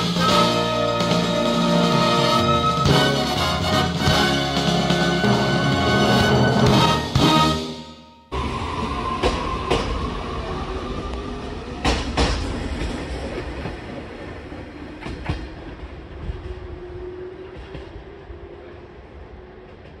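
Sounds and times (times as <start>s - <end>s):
train running hum: 0.0s - 7.6s, 8.3s - 20.0s
train wheels clacking over rail joints: 11.8s - 14.0s.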